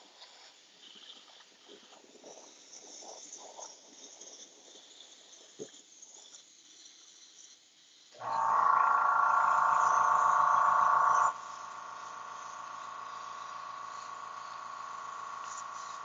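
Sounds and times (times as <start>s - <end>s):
small electric motor humming: 8.2s - 16.0s.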